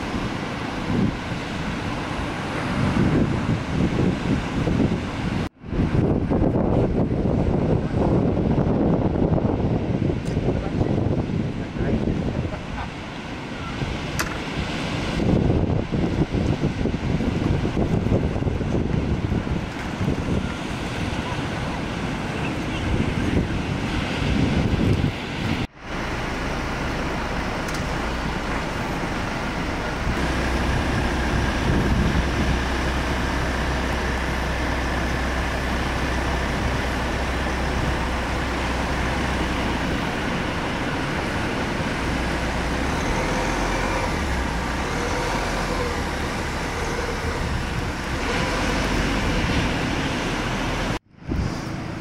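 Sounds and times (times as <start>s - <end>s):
wind on microphone: 0.0s - 52.0s.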